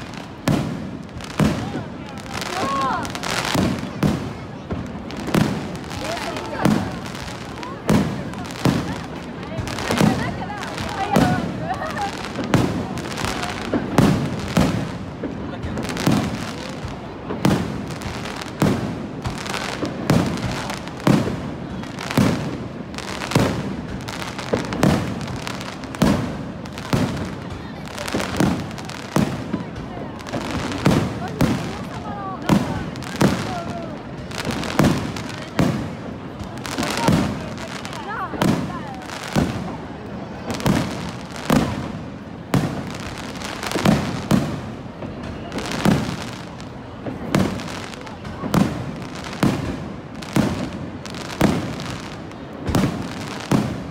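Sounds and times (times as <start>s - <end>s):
firework bangs: 0.0s - 53.9s
firework crackle: 0.0s - 53.9s.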